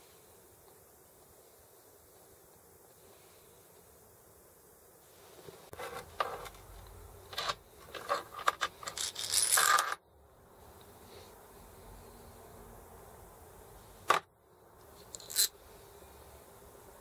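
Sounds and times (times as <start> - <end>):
steel parts clinking and scraping: 7.3 - 10.0, 15.1 - 15.5.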